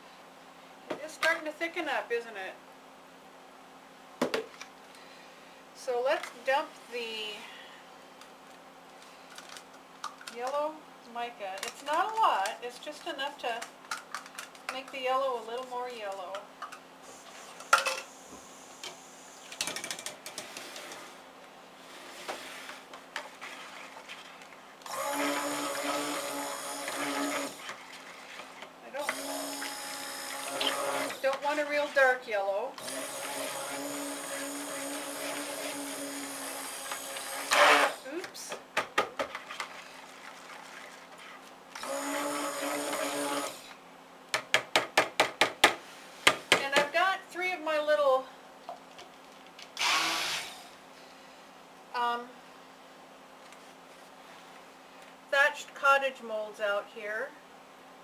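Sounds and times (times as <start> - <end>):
stick blender motor whine: 24.8 - 27.6, 29.0 - 32.2, 32.8 - 38.1, 41.8 - 43.8, 49.8 - 50.7.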